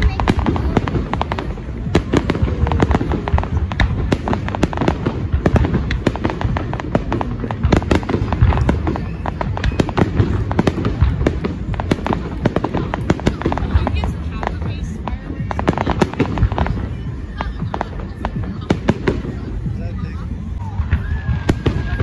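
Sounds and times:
continuous low rumble: 0.0s - 22.0s
fireworks bursting and crackling: 0.0s - 22.0s.

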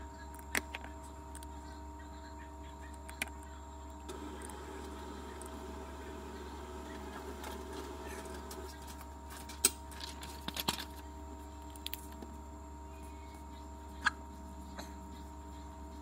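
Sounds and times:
electrical hum: 0.0s - 16.0s
faint mechanical whirring: 0.0s - 16.0s
paper rustling and clicks: 8.3s - 11.0s.

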